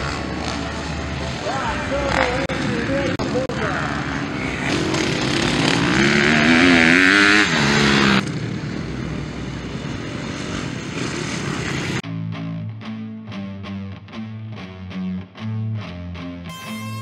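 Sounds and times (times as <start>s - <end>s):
motocross bike engine revving: 0.0s - 12.0s.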